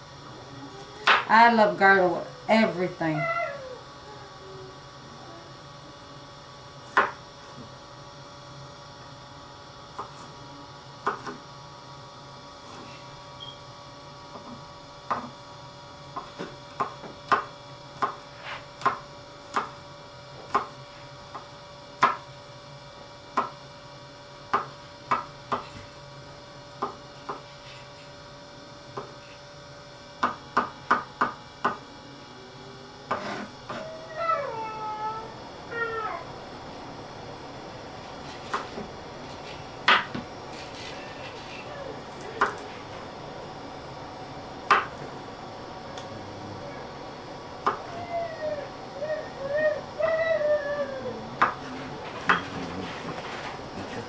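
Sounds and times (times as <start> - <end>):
faint steady hum: 0.0 - 54.0
knife chopping on wooden board: 6.9 - 7.2, 11.0 - 11.4, 16.2 - 18.2, 18.8 - 19.8, 20.5 - 22.2, 24.5 - 25.7, 26.8 - 27.5, 38.4 - 38.8.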